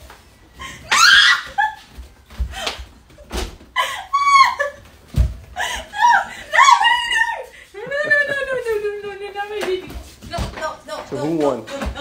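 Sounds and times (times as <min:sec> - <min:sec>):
women shrieking and yelling: 0:00.8 - 0:01.8, 0:03.8 - 0:04.8, 0:05.6 - 0:08.7
bodies thumping together: 0:05.0 - 0:05.6
women laughing: 0:05.6 - 0:09.3.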